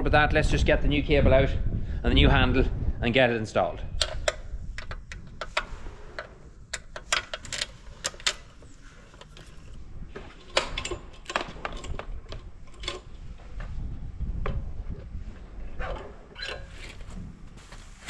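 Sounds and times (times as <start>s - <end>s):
throttle cable clicks and rattles: 3.9s - 17.1s.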